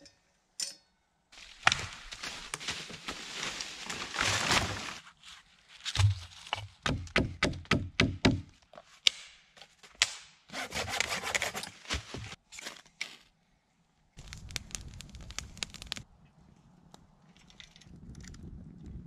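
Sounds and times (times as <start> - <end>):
hand saw strokes on wood: 10.5 - 12.4
wood rubbing and scraping: 10.6 - 12.4.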